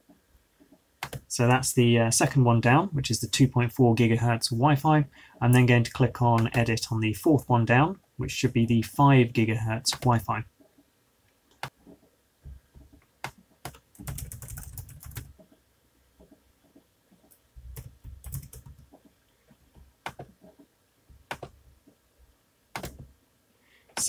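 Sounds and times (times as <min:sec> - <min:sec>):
keyboard typing: 0:01.0 - 0:01.3, 0:12.8 - 0:15.5, 0:17.3 - 0:19.0, 0:19.6 - 0:21.6, 0:22.7 - 0:23.1.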